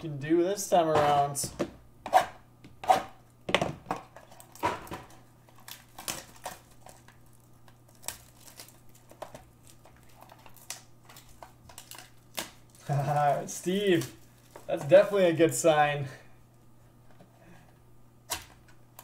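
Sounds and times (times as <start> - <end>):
cardboard packaging crinkling: 4.2 - 15.2.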